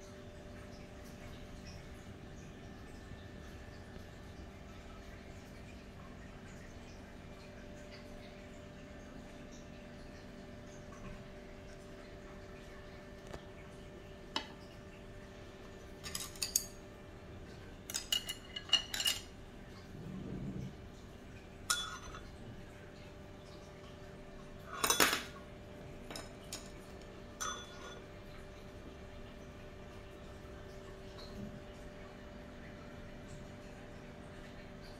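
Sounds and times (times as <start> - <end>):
faint steady hum: 0.0 - 34.9
metal spoon clinking on ceramic: 21.7 - 22.2, 27.4 - 28.0.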